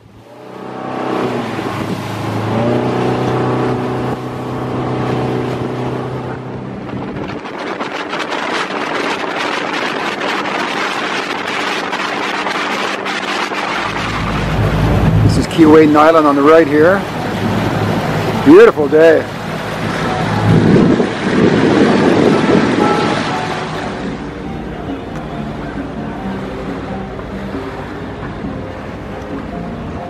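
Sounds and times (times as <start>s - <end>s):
motorboat engine running: 0.0s - 30.0s
water rushing: 0.0s - 30.0s
wind buffeting microphone: 0.6s - 24.5s.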